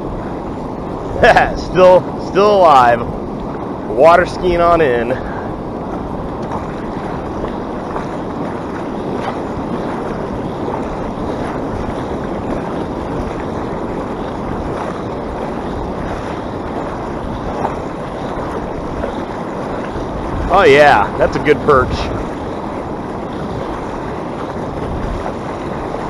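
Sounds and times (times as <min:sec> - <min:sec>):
shallow surf washing: 0:00.0 - 0:26.0
wind noise on microphone: 0:00.0 - 0:26.0.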